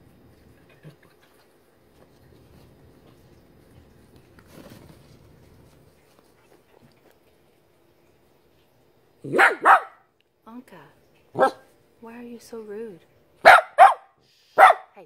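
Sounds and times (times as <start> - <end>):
puppies scuffling and rustling: 0.0 - 8.8
dog barking sharply: 9.3 - 10.1, 11.4 - 11.7, 13.4 - 15.0.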